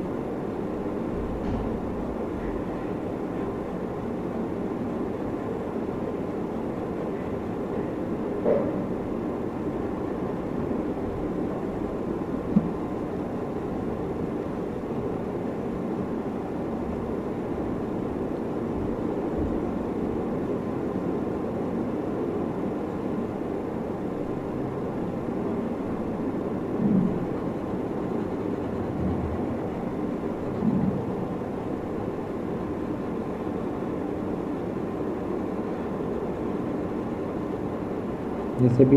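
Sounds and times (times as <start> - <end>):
low background rumble: 22.9 - 38.9.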